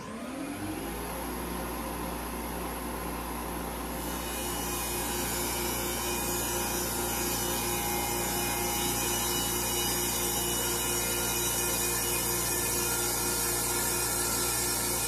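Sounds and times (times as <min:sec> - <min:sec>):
milling machine spindle hum: 0:00.0 - 0:15.0
cutter hissing through wood: 0:03.6 - 0:15.0.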